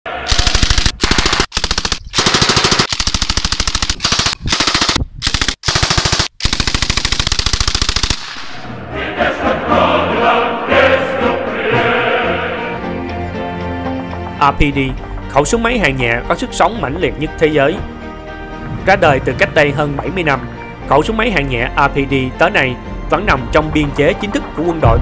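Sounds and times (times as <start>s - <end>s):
choral music: 0.1s - 0.3s, 8.5s - 25.0s
machine gun automatic fire: 0.3s - 8.5s.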